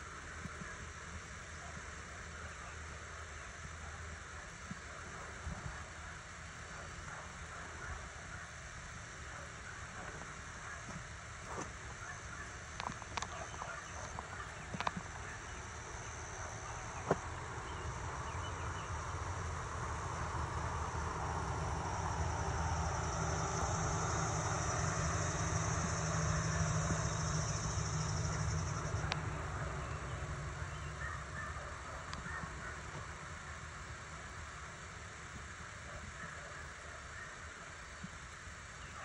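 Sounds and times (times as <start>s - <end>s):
insect chorus drone: 0.0s - 39.0s
low rumble: 13.7s - 33.8s.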